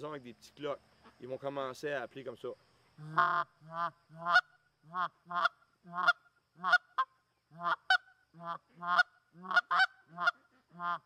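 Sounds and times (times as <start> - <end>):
goose call honks and clucks: 3.0 - 11.0.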